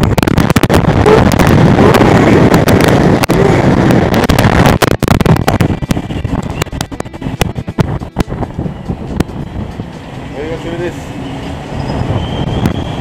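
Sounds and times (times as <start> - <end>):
wind pops and crackles: 0.0 - 9.8, 12.4 - 13.0
strong wind buffeting microphone: 0.0 - 13.0.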